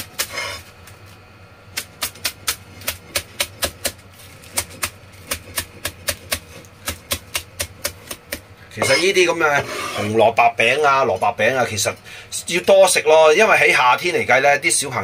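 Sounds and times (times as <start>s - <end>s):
cleaver chopping on plastic board: 1.8s - 8.4s.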